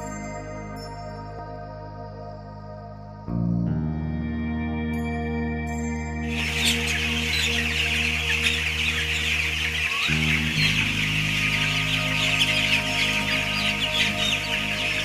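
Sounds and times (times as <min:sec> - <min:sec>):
background music low notes: 0:00.0 - 0:15.0
chicks peeping: 0:06.3 - 0:15.0.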